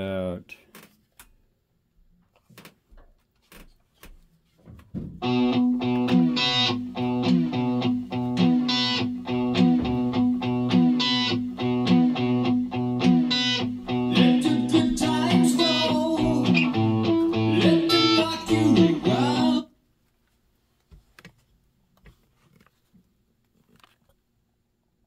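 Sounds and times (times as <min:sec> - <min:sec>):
guitar music through speakers: 0:05.2 - 0:19.6.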